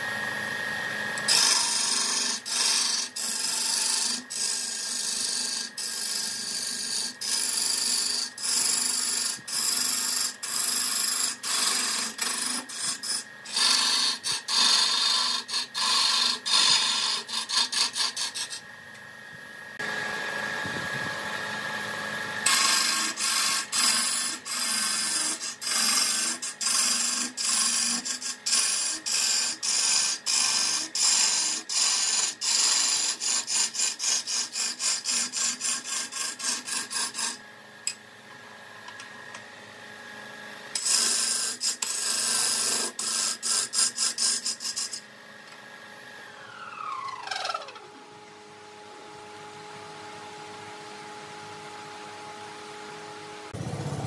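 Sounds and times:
tool scraping wood: 1.2s - 18.6s, 22.4s - 37.4s, 40.8s - 45.1s, 46.3s - 48.2s.

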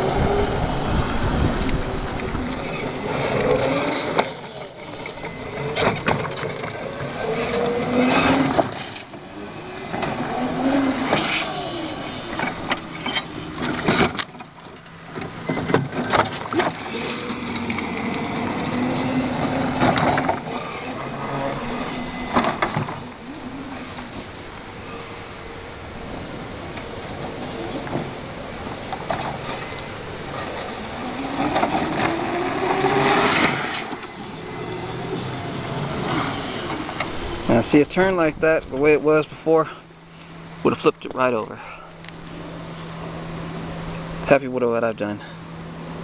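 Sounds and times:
truck clattering over ground: 0.0s - 24.4s
electric motor whining: 0.0s - 37.6s.

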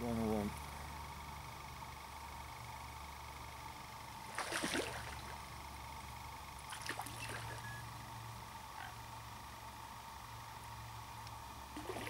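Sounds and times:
low background hum: 0.0s - 12.0s
water splashing: 4.3s - 5.3s, 6.7s - 7.6s, 11.8s - 12.0s.

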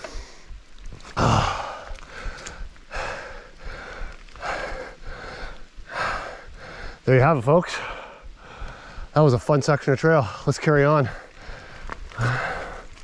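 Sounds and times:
person breathing hard: 1.2s - 7.1s, 7.7s - 9.2s, 11.0s - 13.0s.

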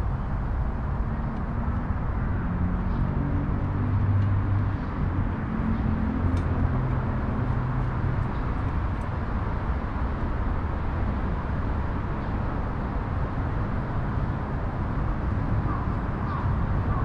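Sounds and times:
city traffic rumble: 0.0s - 17.0s
vehicle engine hum: 0.0s - 17.0s.

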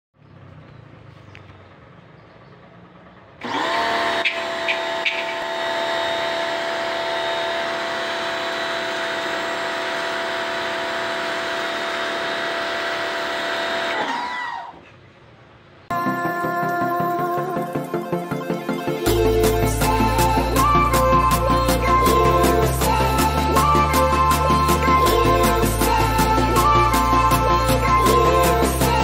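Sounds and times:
pressure washer motor whine: 3.4s - 14.4s, 17.8s - 29.0s.

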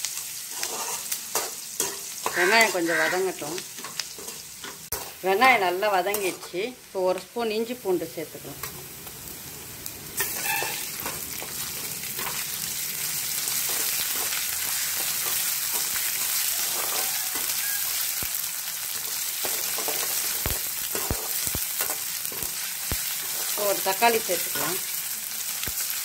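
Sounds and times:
onions sizzling in hot oil: 0.0s - 26.0s
metal ladle stirring and scraping: 0.5s - 3.1s, 10.2s - 11.6s, 15.2s - 17.6s.

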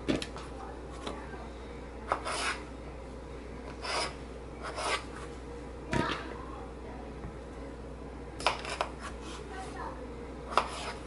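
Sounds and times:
knife cutting potato on board: 2.1s - 2.6s, 3.8s - 5.2s, 8.4s - 9.4s, 10.5s - 11.0s.

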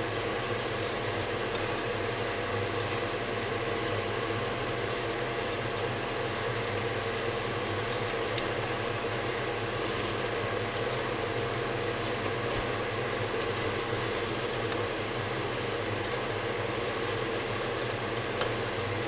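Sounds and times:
steady mechanical hum: 0.0s - 19.0s
spatula scraping a saucepan: 9.1s - 14.7s, 15.9s - 18.2s.

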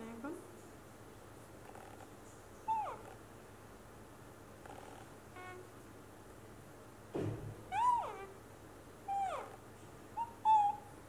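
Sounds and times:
baby monkey squealing: 2.7s - 3.1s, 5.4s - 5.7s, 7.7s - 8.4s, 9.1s - 9.6s, 10.2s - 10.9s.

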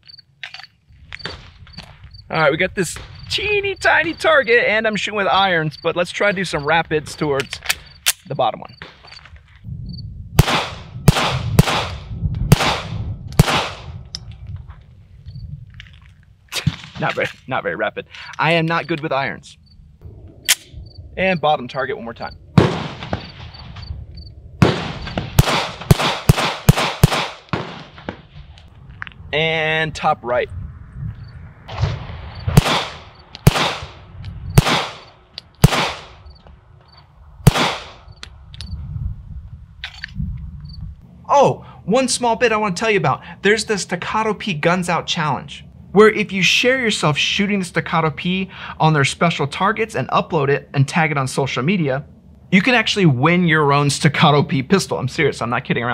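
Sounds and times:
pistol shots with echo: 10.4s - 13.9s, 22.6s - 23.4s, 24.6s - 28.2s, 32.5s - 34.0s, 34.6s - 36.2s, 37.4s - 38.0s.

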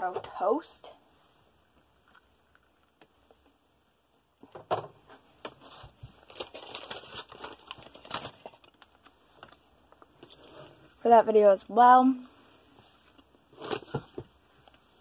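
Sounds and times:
crinkling and clicking handling: 1.7s - 3.6s, 4.4s - 10.8s.

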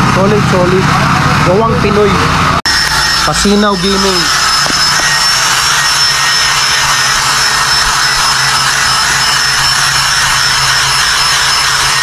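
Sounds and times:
machine hissing whir: 0.0s - 12.0s
faint high whine: 0.4s - 12.0s.

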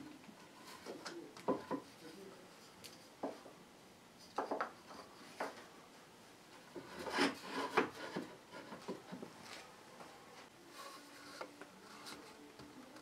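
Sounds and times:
wood rubbing on wood: 6.5s - 9.4s.

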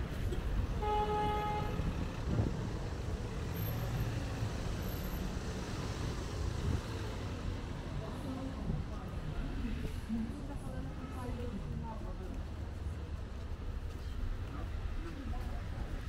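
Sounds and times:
street traffic rumble: 0.0s - 16.0s
vehicle horn toot: 0.8s - 1.8s.

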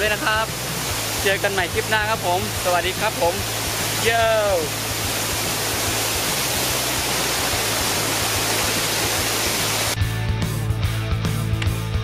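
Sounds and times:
waterfall roaring: 0.0s - 10.0s
upbeat rock music: 10.0s - 12.0s.

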